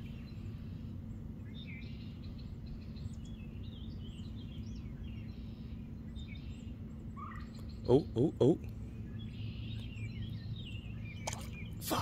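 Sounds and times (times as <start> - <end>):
small birds chirping: 0.0 - 12.0
steady low rumble and hum: 0.0 - 12.0.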